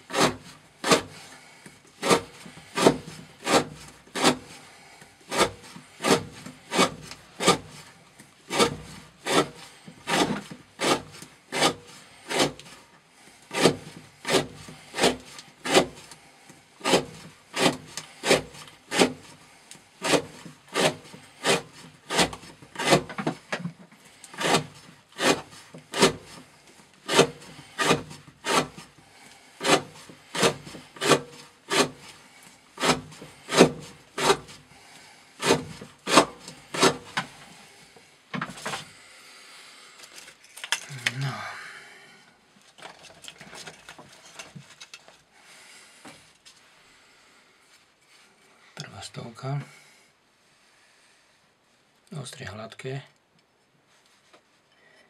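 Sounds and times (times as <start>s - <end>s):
knife shaving wood: 0.0s - 41.5s.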